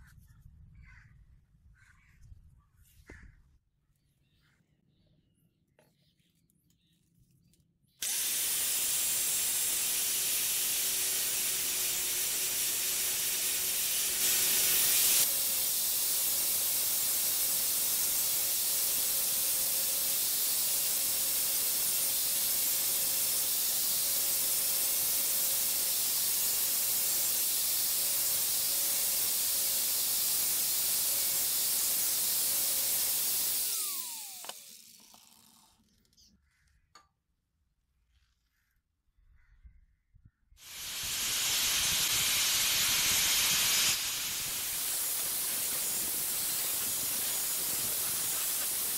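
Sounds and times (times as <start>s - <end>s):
angle grinder grinding metal: 8.0s - 35.8s, 40.6s - 48.9s
grinder winding down whine: 8.0s - 36.1s, 40.6s - 48.9s.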